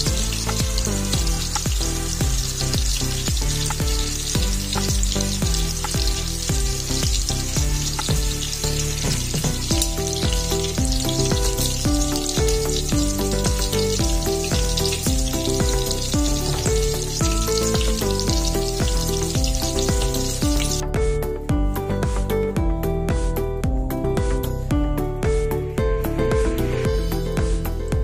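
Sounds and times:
shrimp frying in oil: 0.0 - 20.8
background music with beat: 0.0 - 28.0.

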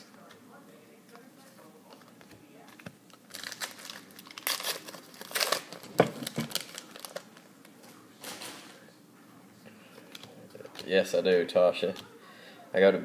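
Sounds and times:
wrapper tearing and crinkling: 2.7 - 7.5.

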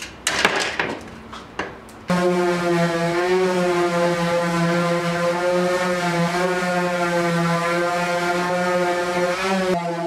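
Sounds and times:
power sander sanding wood: 2.1 - 10.0.

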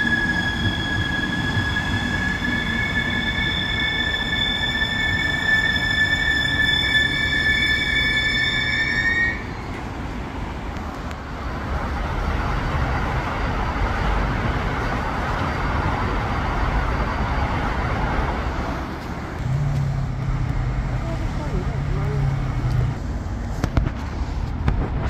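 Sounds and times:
train brakes squealing: 0.0 - 10.1
train rumbling past: 0.0 - 25.0.

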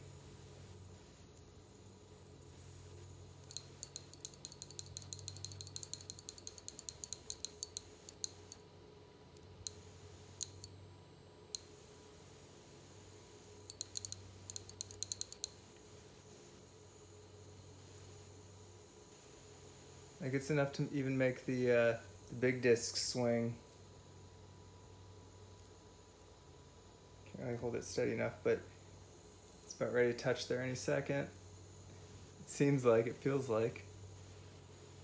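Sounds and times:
piercing high tone: 16.1 - 34.4.

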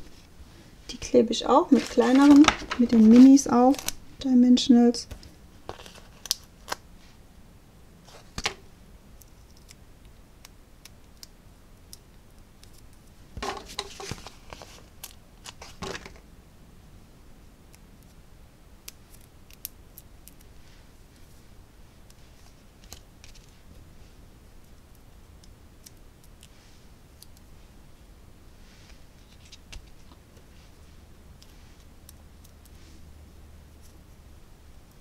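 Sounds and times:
paper rustling and clicks: 1.7 - 3.9, 13.4 - 16.2.

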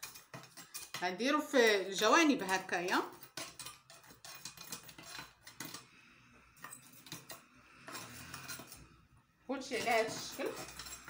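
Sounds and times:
metal tongs clinking on charcoal: 0.0 - 5.8, 9.6 - 11.0.

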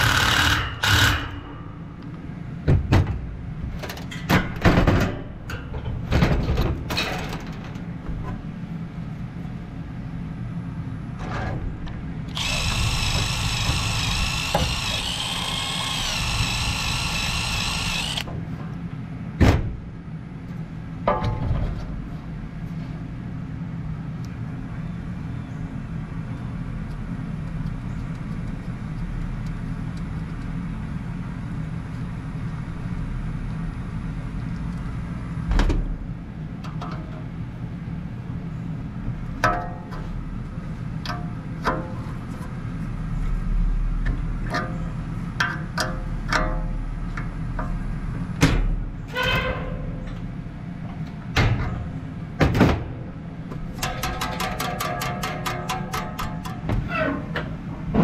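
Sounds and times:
cordless driver whining: 12.3 - 18.3
metal parts clunking: 53.8 - 57.6.

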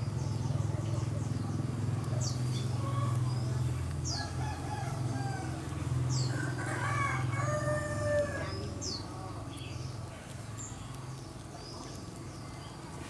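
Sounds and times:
rooster crowing: 4.2 - 8.6.

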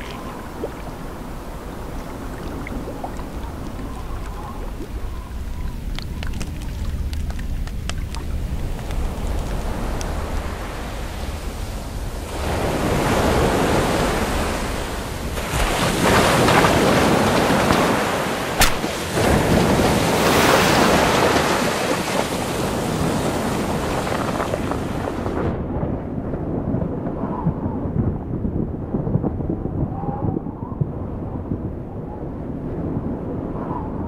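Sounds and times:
sharp crack: 18.5 - 19.6.

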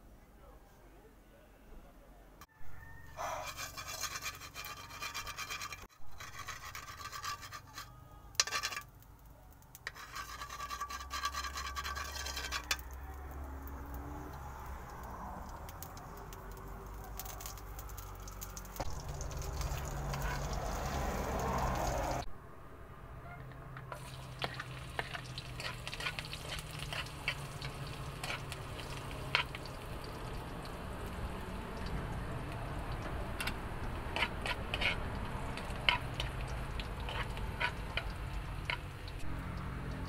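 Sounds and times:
metal spoon scraping a wok: 3.2 - 9.0, 9.8 - 13.1, 18.8 - 22.2, 23.9 - 30.1, 33.0 - 39.2.

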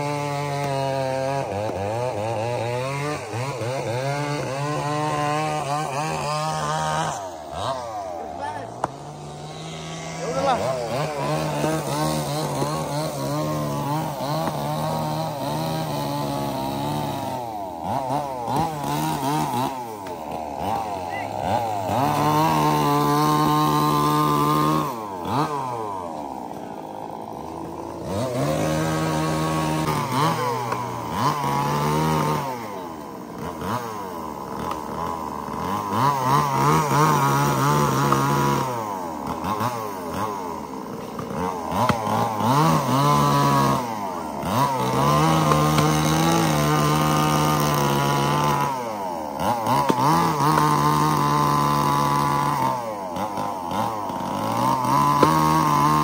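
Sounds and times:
chainsaw revving and idling: 0.0 - 56.0.

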